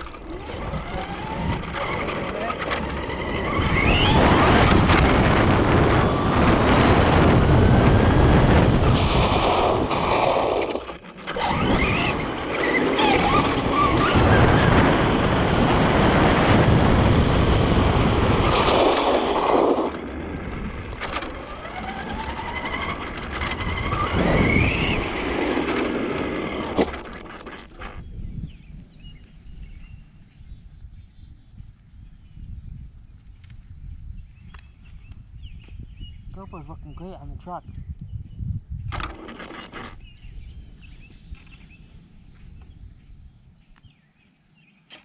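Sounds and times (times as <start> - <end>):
electric motor whine: 0.0 - 28.0
tyre and road noise: 0.0 - 28.1, 38.8 - 43.2.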